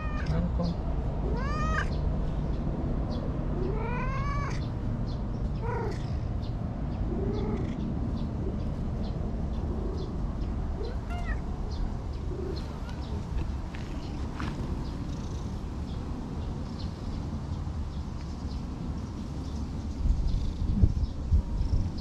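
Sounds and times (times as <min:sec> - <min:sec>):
cat meowing: 0:00.0 - 0:00.4, 0:01.2 - 0:02.0, 0:03.6 - 0:04.7, 0:05.6 - 0:06.1, 0:10.8 - 0:11.4.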